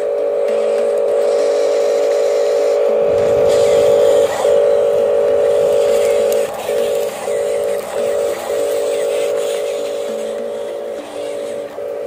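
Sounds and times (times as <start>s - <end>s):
small electric motor whining: 0.0s - 12.0s
rough low rumble: 3.0s - 8.4s.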